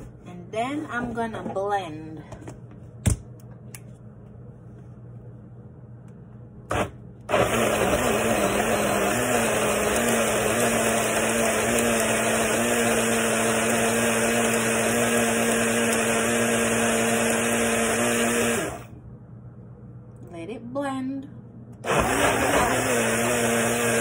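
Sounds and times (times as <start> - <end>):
blender motor running: 6.7 - 18.9, 21.8 - 24.0.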